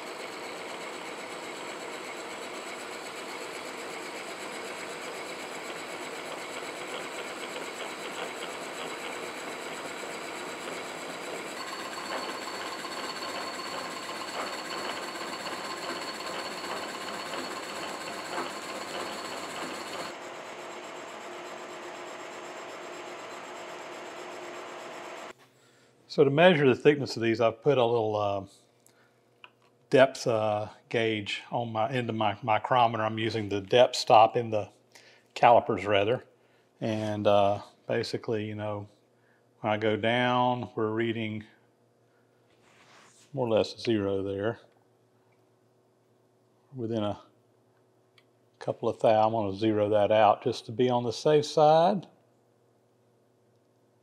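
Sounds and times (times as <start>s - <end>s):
milling machine cutting chatter: 0.0s - 25.3s
steady gear whine: 0.0s - 25.3s.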